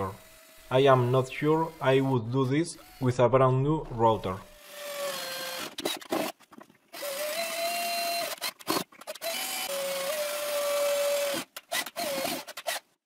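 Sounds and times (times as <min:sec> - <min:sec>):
cordless drill whine: 0:00.0 - 0:02.2, 0:04.4 - 0:06.3, 0:07.0 - 0:12.8.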